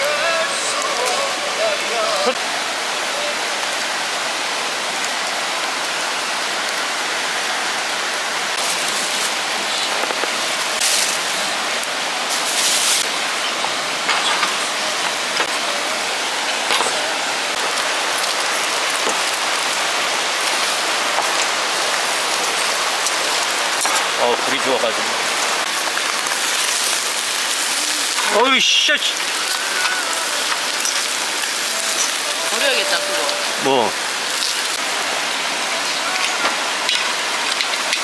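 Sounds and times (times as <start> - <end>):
steady rain falling: 0.0 - 38.0.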